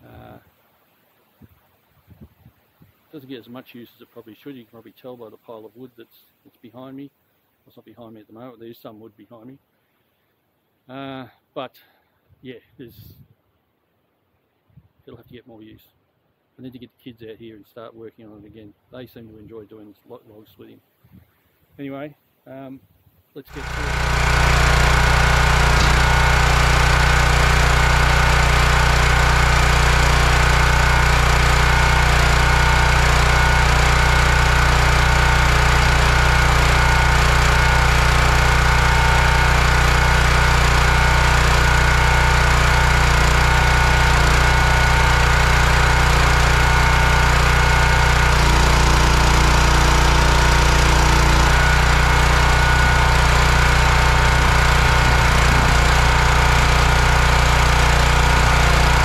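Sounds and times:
small petrol engine running: 23.5 - 59.0.

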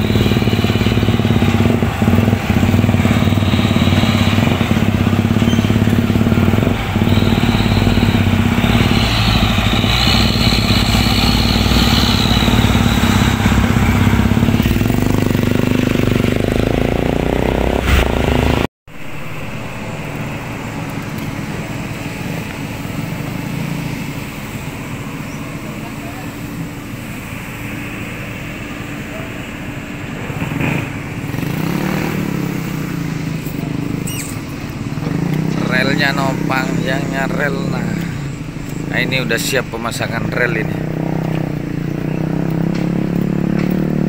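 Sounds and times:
heavy truck engine revving: 0.0 - 44.0
low engine hum: 17.8 - 31.8.

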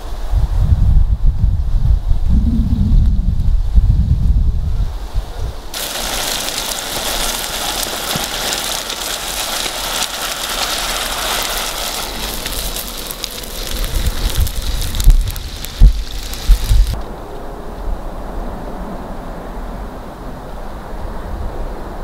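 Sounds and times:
campfire coals hissing and crackling: 5.7 - 17.1
low thumps: 13.6 - 17.0.

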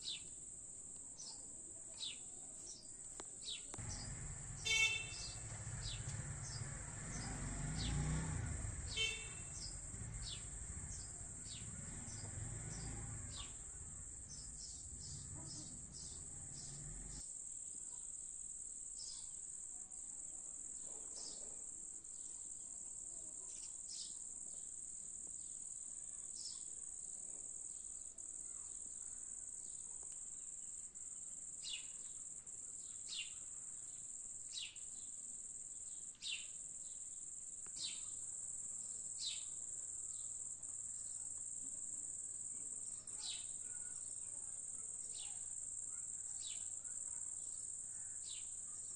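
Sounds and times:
crickets trilling: 3.5 - 17.2, 30.4 - 48.9.

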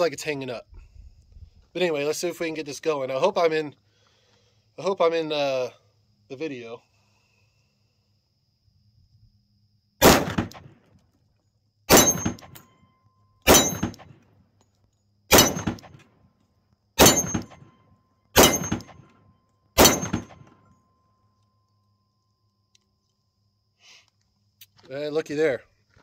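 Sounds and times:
pistol shots with echo: 10.0 - 10.8, 11.9 - 12.7, 13.5 - 14.2, 15.3 - 16.0, 17.0 - 17.8, 18.4 - 19.1, 19.8 - 20.6.

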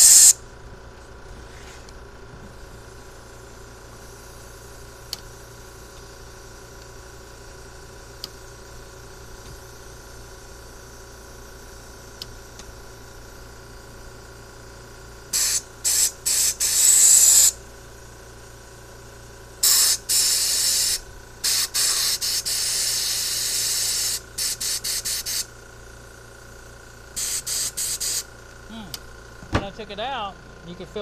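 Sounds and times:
compressed air blow gun hissing: 0.0 - 0.4, 15.2 - 17.6, 19.6 - 25.6, 27.1 - 28.3.

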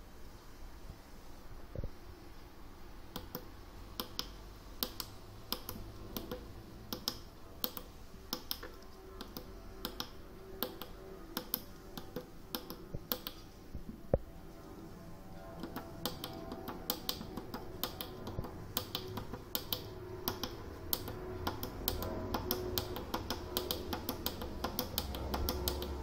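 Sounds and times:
push buttons clicking: 4.0 - 13.4, 15.6 - 26.0.

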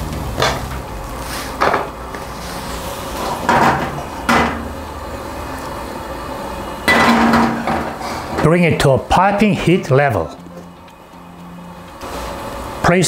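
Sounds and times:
gas burner rushing: 0.0 - 13.0
metal wok knocking and scraping: 3.1 - 4.7, 6.9 - 8.4.

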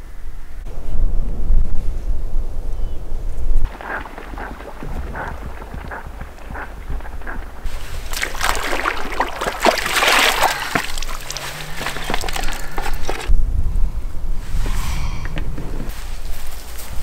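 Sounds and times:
water splashing and sloshing: 3.7 - 13.3.

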